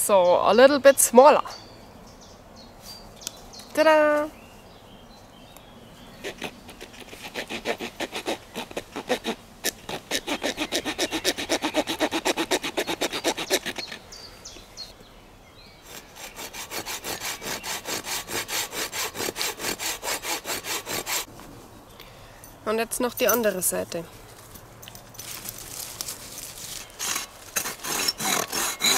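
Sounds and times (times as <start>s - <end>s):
hand saw cutting wood: 6.2s - 14.0s, 15.8s - 21.3s, 26.9s - 28.9s.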